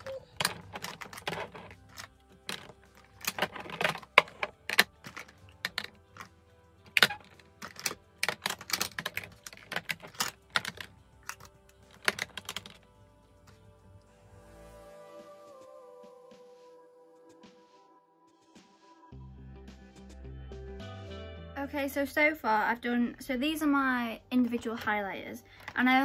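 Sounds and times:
plastic clacking on plastic: 0.0s - 6.3s, 6.9s - 12.8s.

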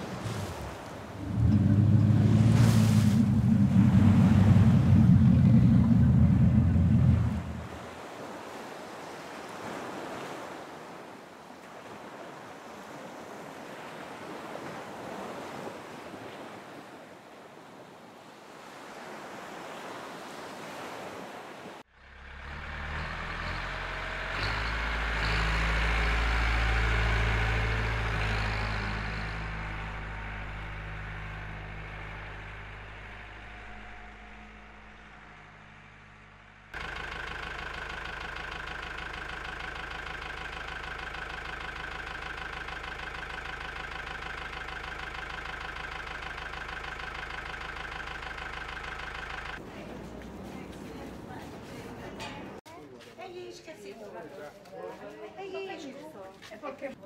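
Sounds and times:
steady engine hum: 0.0s - 8.4s, 21.9s - 52.6s
ocean surf washing in: 0.0s - 21.8s
motor engine: 1.1s - 8.0s, 21.9s - 49.6s.

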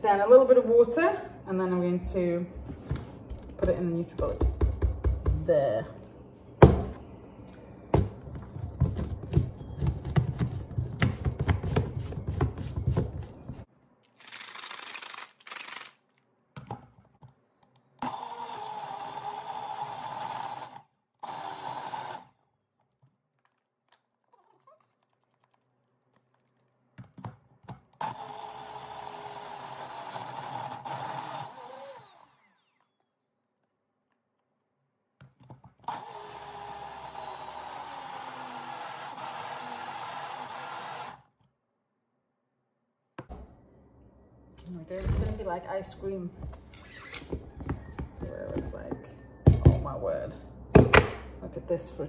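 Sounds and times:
blender motor whining: 18.0s - 22.3s, 28.0s - 33.0s, 35.9s - 41.3s.

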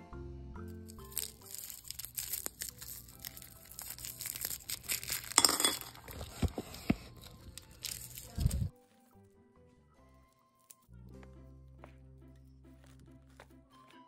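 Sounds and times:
cellophane wrappers crinkling: 0.8s - 8.7s
hard candies clinking into china bowl: 0.8s - 8.7s.

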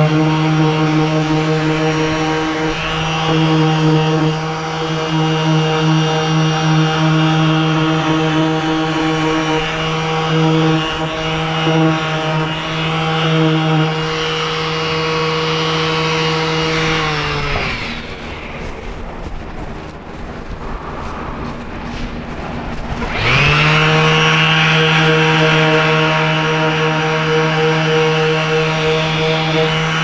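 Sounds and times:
orbital sander running: 0.0s - 30.0s
low even rushing noise: 13.8s - 25.2s.

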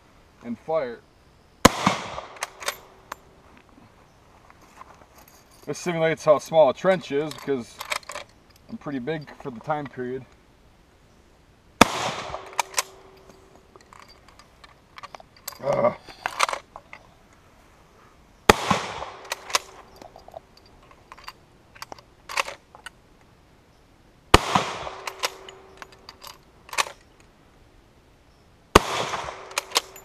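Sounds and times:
rifle shots with echo: 1.6s - 3.1s, 11.8s - 13.5s, 18.5s - 19.9s, 24.3s - 25.9s, 28.8s - 30.0s
rifle bolt clicking: 12.2s - 15.2s, 19.1s - 20.2s, 24.5s - 27.0s, 29.0s - 30.0s.

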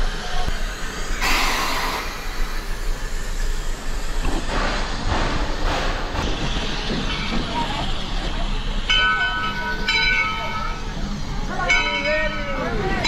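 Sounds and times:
steam locomotive hissing: 0.0s - 13.0s
low rumble: 0.6s - 6.2s.

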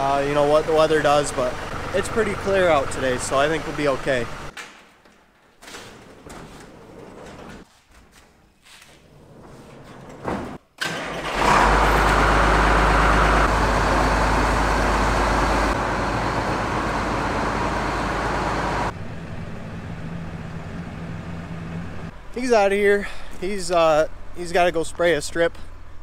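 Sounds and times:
tractor diesel engine running: 0.0s - 4.6s, 10.8s - 25.0s.

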